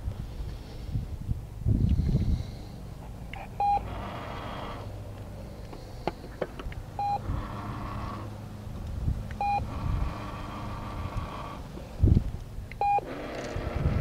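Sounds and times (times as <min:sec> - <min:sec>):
motor whirring: 0:03.6 - 0:05.0, 0:07.0 - 0:08.4, 0:09.4 - 0:12.1, 0:12.8 - 0:14.0
short beep: 0:09.4 - 0:09.6, 0:12.8 - 0:13.0.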